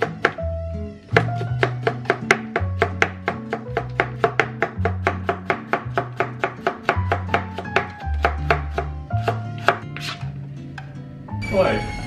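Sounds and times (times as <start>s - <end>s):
knife chopping on plastic board: 0.0s - 0.4s, 1.1s - 10.2s
background music: 0.0s - 12.0s.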